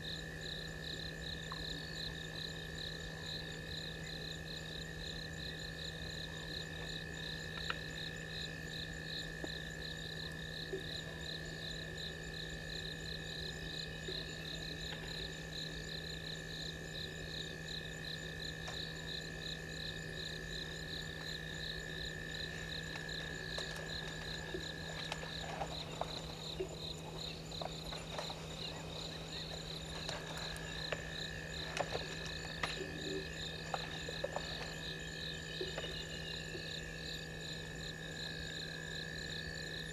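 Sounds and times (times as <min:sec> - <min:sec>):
continuous low drone: 0:00.0 - 0:39.9
sharp cracks and snaps: 0:22.5 - 0:26.4, 0:29.4 - 0:34.8.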